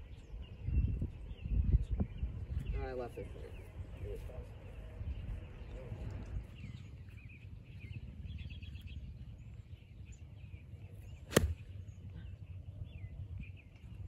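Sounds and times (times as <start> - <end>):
small birds chirping: 0.0 - 14.0
golf club striking ball: 11.3 - 11.6.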